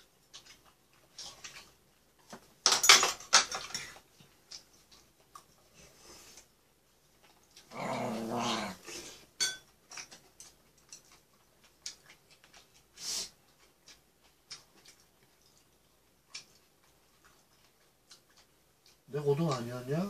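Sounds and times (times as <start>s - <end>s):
dog growling: 7.7s - 9.0s
cutlery tapping on tableware: 9.4s - 9.7s.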